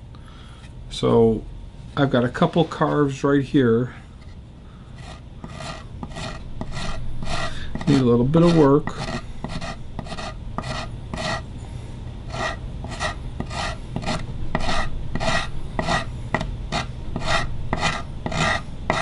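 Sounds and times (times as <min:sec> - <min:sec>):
file rasping on wood: 0:05.0 - 0:11.5, 0:12.3 - 0:19.0.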